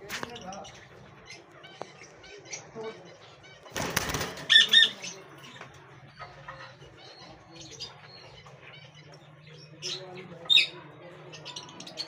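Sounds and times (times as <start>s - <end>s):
lovebirds chirping: 0.0s - 12.0s
wings fluttering: 3.7s - 5.0s.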